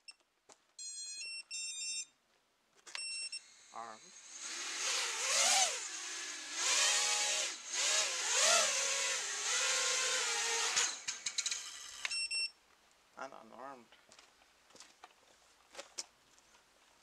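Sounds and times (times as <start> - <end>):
quadcopter motors whining: 3.3 - 12.1.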